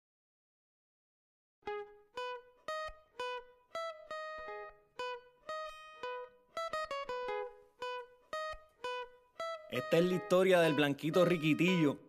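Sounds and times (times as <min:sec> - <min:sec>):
plucked string melody: 0:01.6 - 0:12.0.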